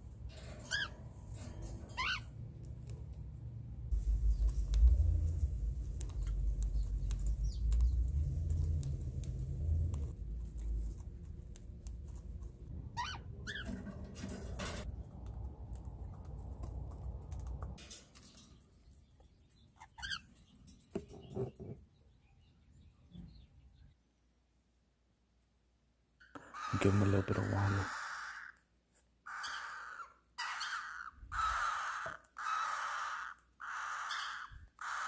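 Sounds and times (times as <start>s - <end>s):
low rumble: 2.4s - 13.4s
cockatiel chirping: 12.9s - 13.8s.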